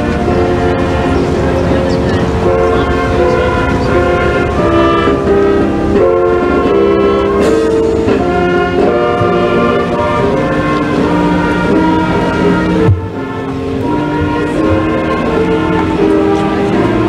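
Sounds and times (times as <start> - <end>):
church organ chords: 0.0 - 17.0.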